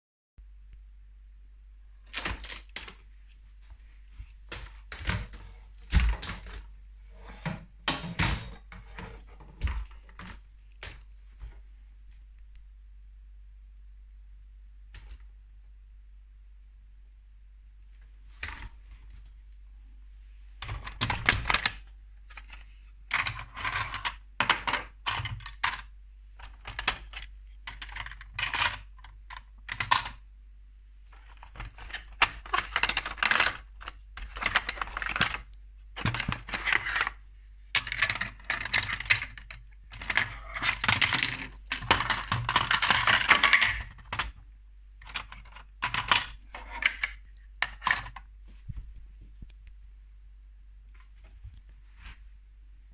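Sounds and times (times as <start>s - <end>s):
plastic toy parts clicking and rattling: 2.0s - 3.0s, 20.6s - 30.2s, 31.1s - 44.4s, 45.0s - 48.3s.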